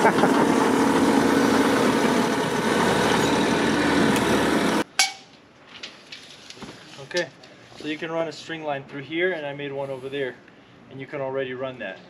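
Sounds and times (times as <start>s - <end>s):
diesel engine running: 0.0s - 4.8s.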